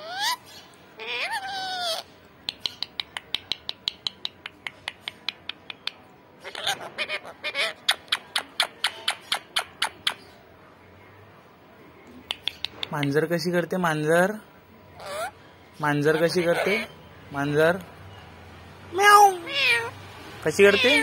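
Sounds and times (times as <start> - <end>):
quick sharp clicks: 2.4 - 6.0.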